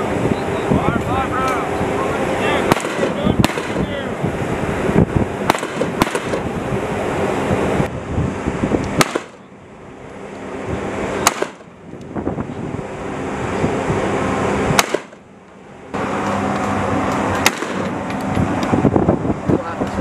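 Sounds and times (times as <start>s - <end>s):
rifle shots: 2.7s - 4.0s, 5.4s - 6.5s, 9.0s - 9.4s, 11.2s - 11.7s, 14.8s - 15.2s, 17.4s - 17.9s.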